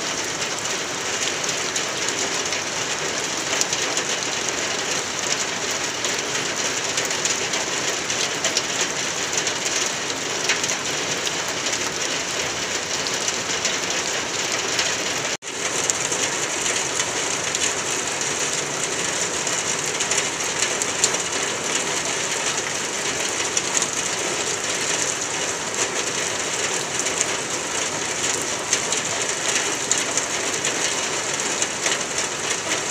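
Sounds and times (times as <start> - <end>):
raindrop ticks: 15.6 - 18.9, 22.5 - 32.9.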